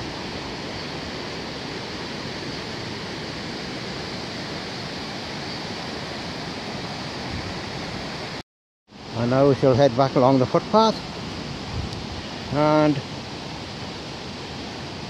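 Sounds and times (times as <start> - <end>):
river water rushing over rocks: 0.0 - 8.4.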